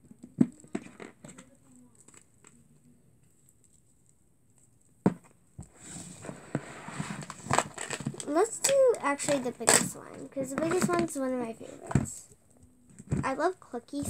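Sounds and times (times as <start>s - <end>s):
plastic containers rustling: 5.7s - 12.3s.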